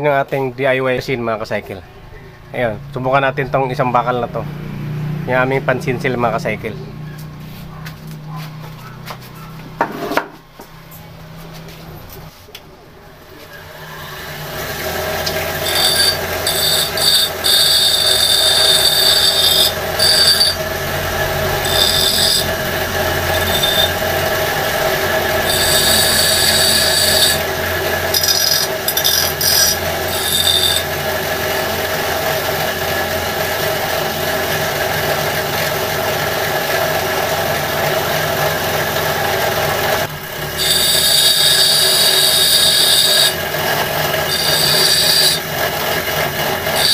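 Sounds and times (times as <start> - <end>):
grinder motor humming: 13.6 - 46.9
chisel on grinding wheel: 13.9 - 46.9.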